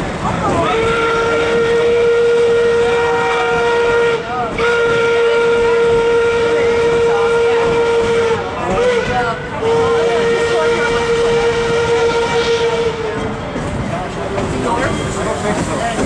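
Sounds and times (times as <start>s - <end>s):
steam locomotive whistle blasts: 0.6s - 13.4s.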